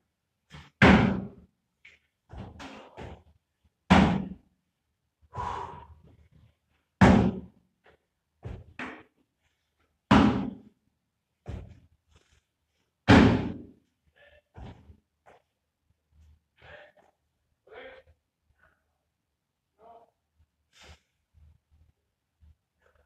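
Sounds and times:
soft footfalls: 1.8 - 3.4, 7.8 - 9.6, 11.4 - 12.5, 14.6 - 15.6
feet thudding on box: 2.3 - 3.3, 8.4 - 9.0, 10.1 - 10.6, 11.4 - 11.8.

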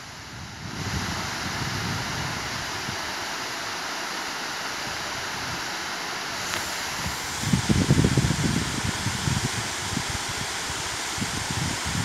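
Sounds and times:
wind rumbling on microphone: 0.0 - 3.1, 6.4 - 12.0
waterfall rushing: 0.0 - 12.0.

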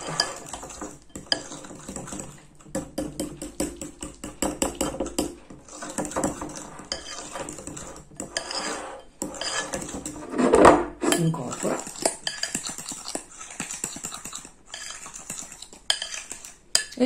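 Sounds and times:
fork clinking against glass bowl: 11.1 - 17.0.

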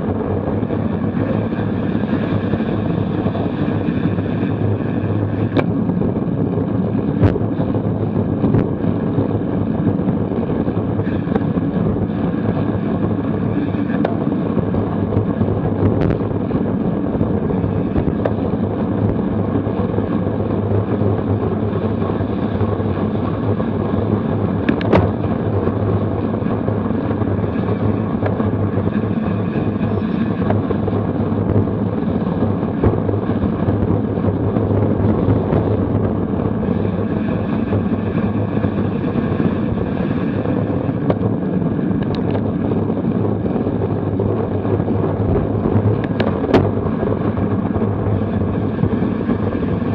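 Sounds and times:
wind rushing on microphone: 0.0 - 49.9.

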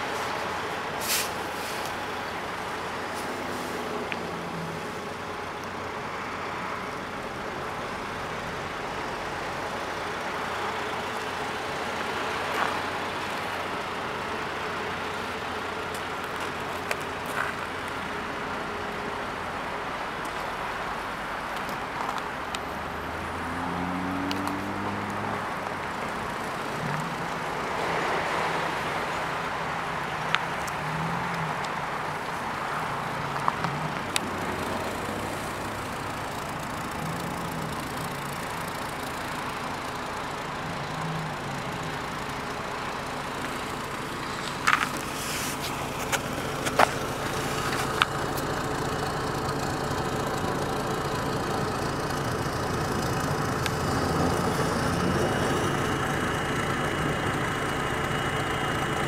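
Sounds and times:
outdoor traffic noise: 0.0 - 59.0
vehicle passing: 22.0 - 49.1.

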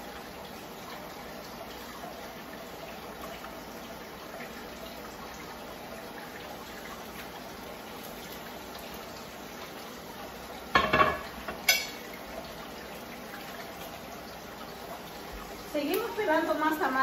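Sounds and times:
food sizzling in hot oil: 6.5 - 13.3
kitchen utensils clattering: 10.7 - 12.1.

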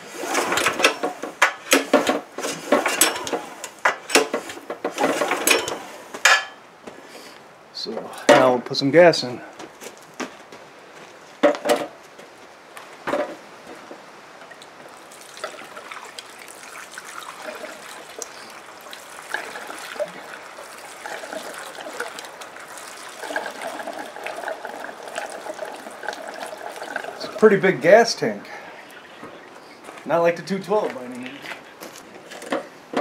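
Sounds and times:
fuel trickling into tank: 14.5 - 29.8.

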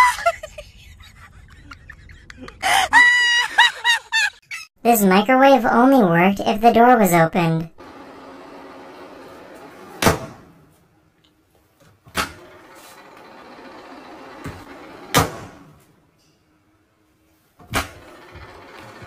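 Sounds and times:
microwave oven humming: 7.8 - 10.5, 12.2 - 15.8, 17.8 - 19.0.

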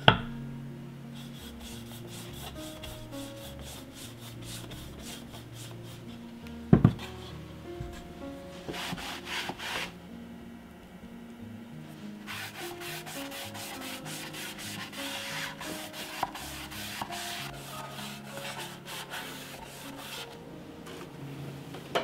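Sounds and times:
foam brush stroking wood: 1.1 - 10.0, 11.9 - 20.4
cloth rubbing on wood: 1.2 - 10.0, 11.9 - 20.4.

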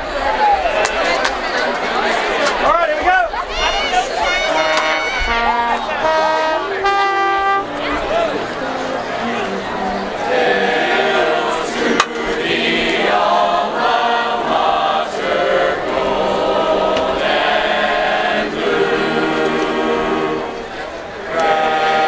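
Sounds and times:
group singing in unison: 8.1 - 22.0.

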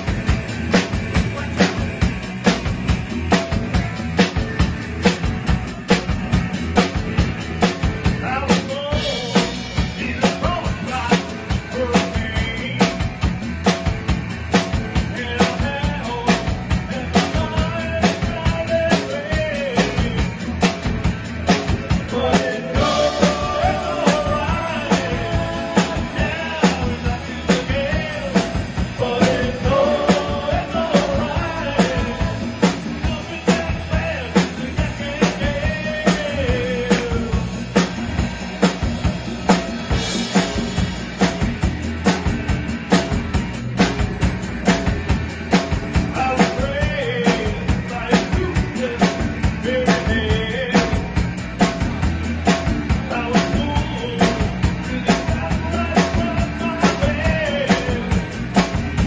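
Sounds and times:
drum kit beat: 0.0 - 59.0
electric guitars: 0.0 - 59.0
man singing into microphone: 8.2 - 13.0, 15.1 - 20.3, 22.0 - 37.5, 46.1 - 51.1, 53.0 - 58.3.

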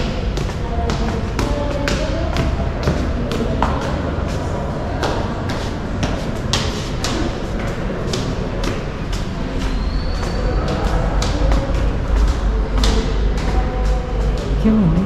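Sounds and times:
footsteps on marble stairs: 0.0 - 13.7
low background hum: 0.0 - 15.0.

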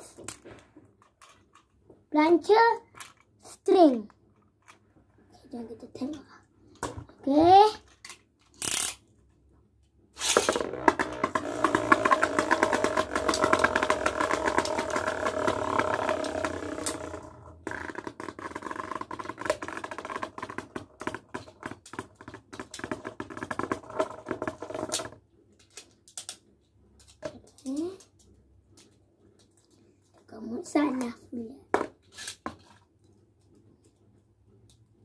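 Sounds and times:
spinning tops clicking and scraping: 8.5 - 9.0, 10.2 - 18.7
spinning tops whirring: 10.2 - 18.7.

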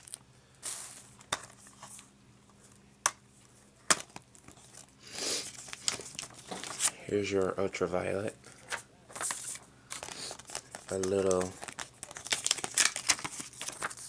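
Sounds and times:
shrink wrap crinkling: 0.0 - 2.0, 4.0 - 7.6, 9.1 - 14.0.

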